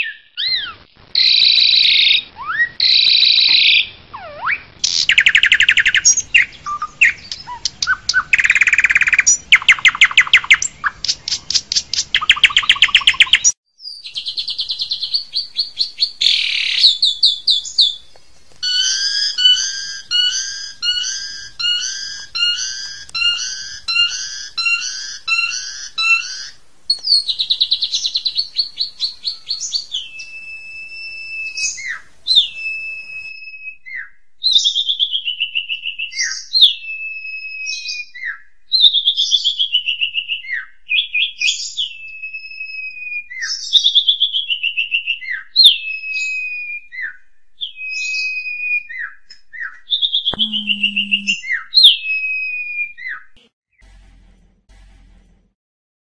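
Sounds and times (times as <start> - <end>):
myna bird singing: 0.0 - 33.3, 47.0 - 52.2.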